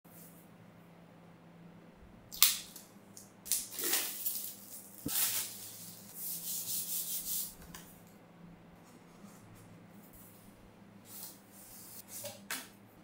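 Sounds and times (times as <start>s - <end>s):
sharp plastic crackle: 2.3s - 6.0s
shrink wrap crinkling and rustling: 3.5s - 6.2s.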